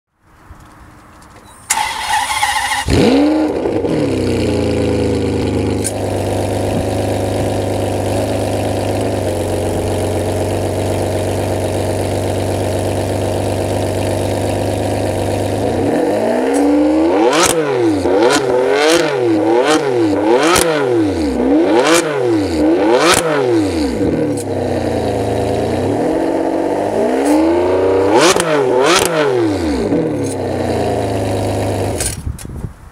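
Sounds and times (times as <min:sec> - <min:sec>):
car engine idling: 0:00.6 - 0:16.0, 0:23.9 - 0:27.0
car engine revving: 0:01.7 - 0:32.1.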